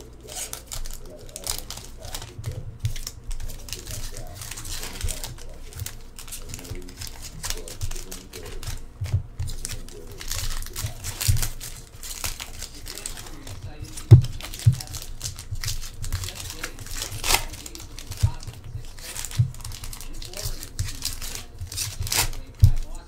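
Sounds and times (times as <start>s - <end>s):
cards clicking: 0.0s - 23.0s
foil wrappers crinkling and tearing: 0.0s - 23.0s.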